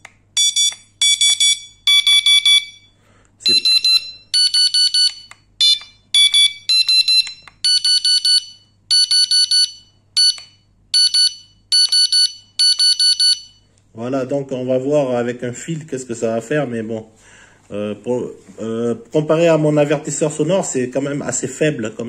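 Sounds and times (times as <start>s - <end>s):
bite alarm beeping: 0.4s - 13.6s.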